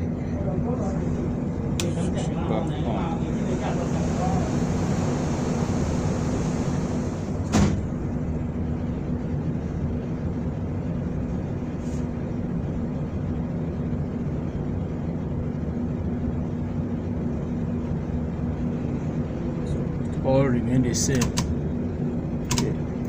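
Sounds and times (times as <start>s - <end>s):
machinery hum: 0.0s - 23.0s
sharp click: 21.1s - 21.5s, 22.5s - 22.8s.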